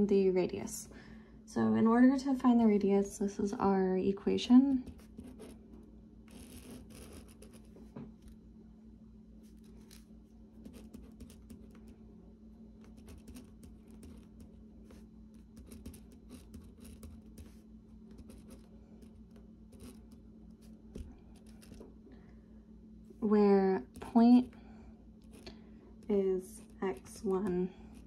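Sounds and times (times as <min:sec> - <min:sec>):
steady low hum: 0:00.0 - 0:28.0
pen scratching on paper: 0:04.8 - 0:05.6, 0:06.3 - 0:07.7, 0:10.6 - 0:11.9, 0:12.8 - 0:20.2.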